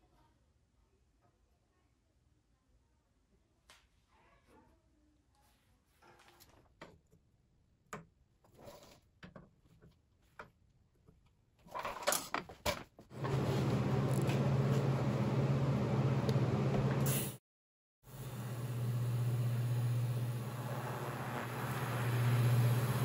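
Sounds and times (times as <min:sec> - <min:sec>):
welding arc hissing: 0:18.1 - 0:23.0.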